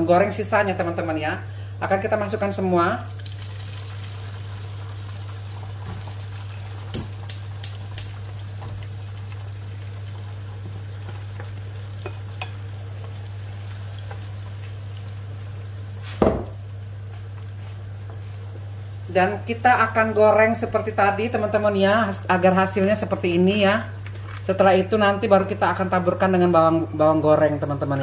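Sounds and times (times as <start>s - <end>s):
peanuts sizzling in hot oil: 3.0s - 25.9s
knock on pan: 16.1s - 16.6s.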